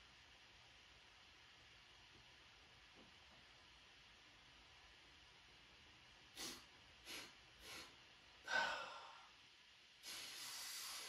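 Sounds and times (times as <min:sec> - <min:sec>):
man sniffing: 0:06.4 - 0:09.0, 0:10.0 - 0:11.0
man breathing: 0:06.4 - 0:09.4, 0:10.0 - 0:11.0.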